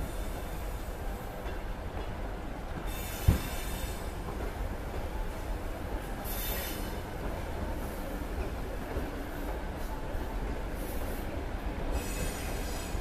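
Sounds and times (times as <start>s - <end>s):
train wheels rumbling: 0.0s - 13.0s
high hissing wheel squeal: 11.9s - 13.0s.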